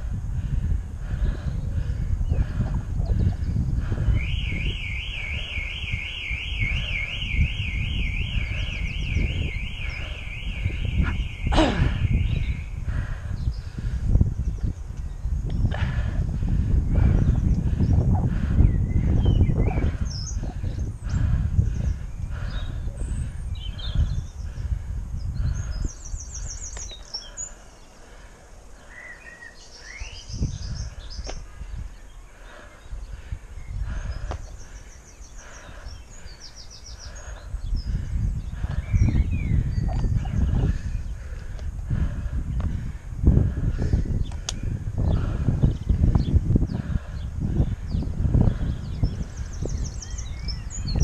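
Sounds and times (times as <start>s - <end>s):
songbirds chirping: 0.0s - 51.0s
wind rumble on microphone: 0.0s - 51.0s
electronic alarm warbling: 4.2s - 12.3s.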